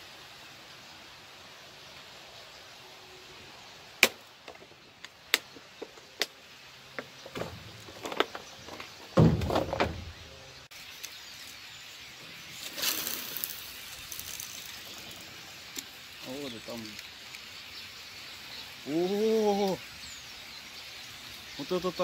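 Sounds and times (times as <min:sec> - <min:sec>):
faint outdoor hiss: 0:00.0 - 0:22.0.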